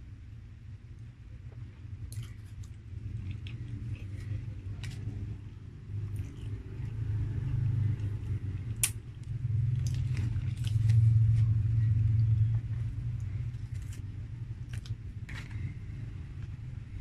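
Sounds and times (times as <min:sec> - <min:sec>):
low steady rumble: 0:00.0 - 0:17.0.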